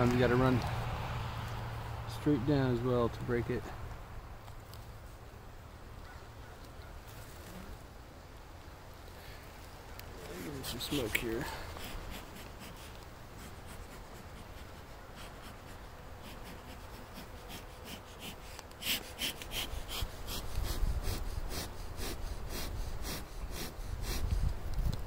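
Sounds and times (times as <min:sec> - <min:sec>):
bellows puffing air: 0:10.1 - 0:24.8.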